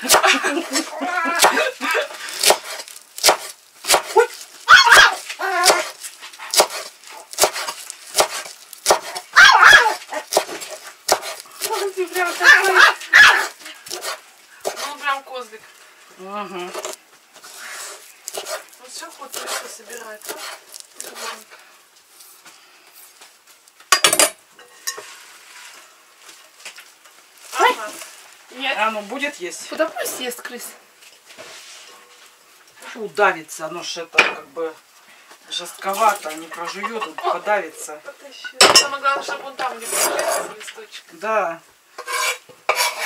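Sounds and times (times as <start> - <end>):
knife chopping on wooden board: 2.4 - 4.2, 5.0 - 9.2, 9.8 - 12.8, 13.4 - 14.9, 18.3 - 18.6, 19.3 - 21.4
dog barking: 4.7 - 5.2, 9.4 - 10.3, 12.4 - 13.6.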